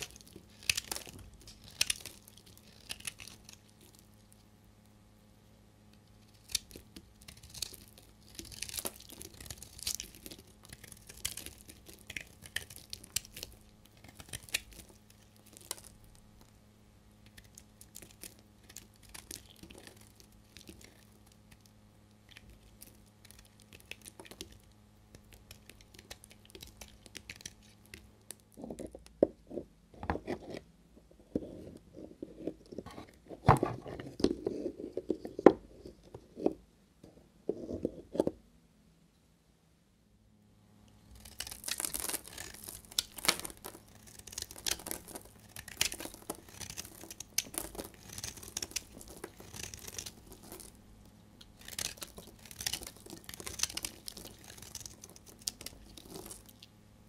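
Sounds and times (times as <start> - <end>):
knife shaving bar soap: 0.0 - 5.1, 5.9 - 29.0, 41.1 - 56.8.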